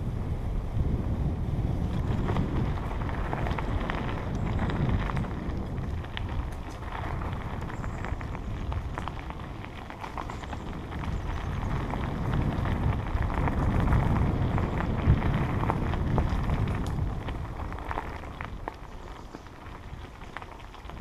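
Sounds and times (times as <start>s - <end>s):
bicycle tyres rolling on dirt: 0.0s - 21.0s
wind rumble on microphone: 0.0s - 21.0s
bike rattling and clicking: 0.2s - 21.0s.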